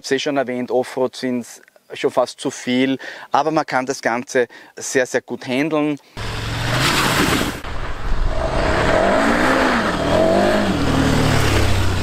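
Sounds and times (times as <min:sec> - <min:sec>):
tyres on loose dirt and gravel: 0:06.2 - 0:08.2
motorcycle engine revving: 0:06.2 - 0:12.0.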